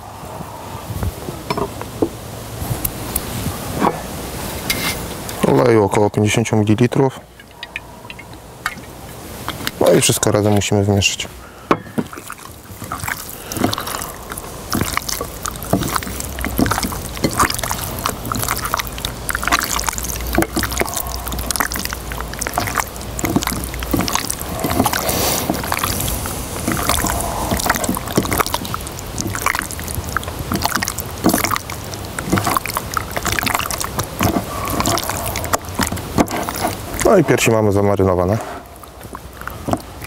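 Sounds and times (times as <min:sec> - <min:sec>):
hands squelching raw meat in marinade: 0:12.0 - 0:40.0
low rumble: 0:12.7 - 0:30.9.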